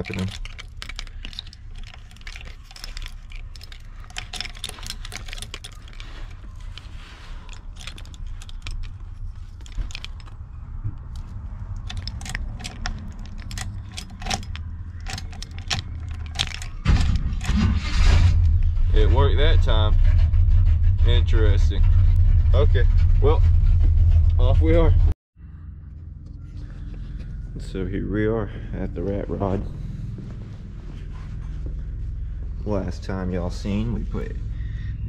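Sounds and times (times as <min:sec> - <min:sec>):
keys jangling and clicking: 0:00.0 - 0:17.6
truck engine starting and rumbling: 0:00.0 - 0:35.0.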